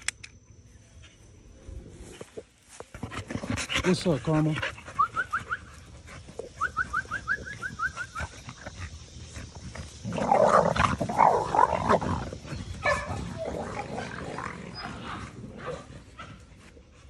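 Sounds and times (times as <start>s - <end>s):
puppies growling: 2.9s - 16.5s.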